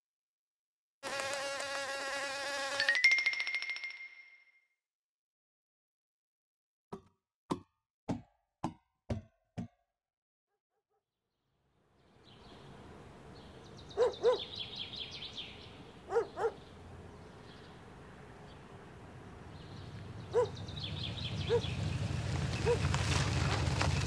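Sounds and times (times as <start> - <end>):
dog barking: 13.9 - 14.6, 16.0 - 16.7, 20.3 - 20.6, 21.4 - 21.7, 22.6 - 22.8.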